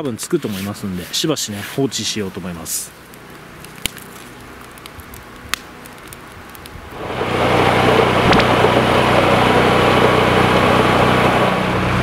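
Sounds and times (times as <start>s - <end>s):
wood fire crackling: 0.0s - 11.4s
fire snapping: 1.9s - 10.2s
snowplow engine and blower: 2.7s - 12.0s.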